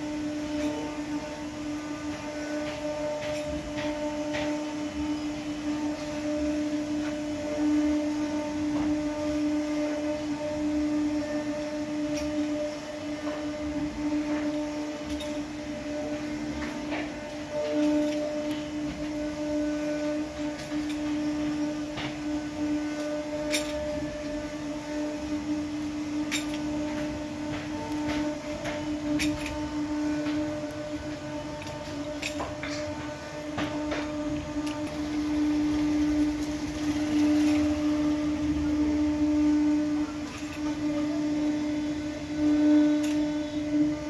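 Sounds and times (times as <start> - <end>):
woodworking machine whine: 0.0 - 44.0.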